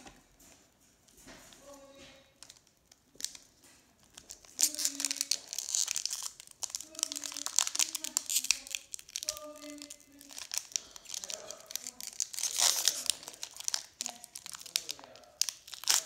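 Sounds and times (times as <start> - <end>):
foil wrapper crinkling: 1.6 - 16.0.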